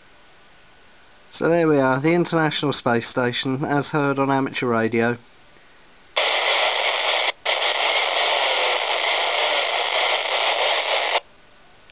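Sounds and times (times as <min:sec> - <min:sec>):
radio static hiss: 0:06.2 - 0:11.3.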